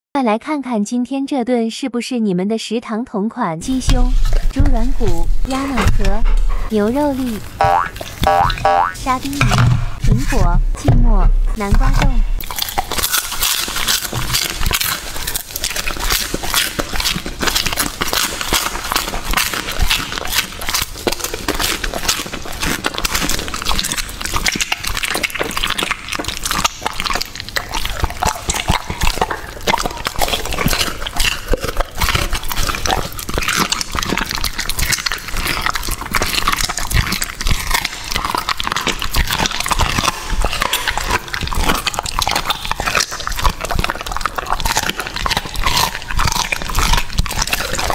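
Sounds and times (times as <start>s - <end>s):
dog chewing and crunching: 3.6s - 47.9s.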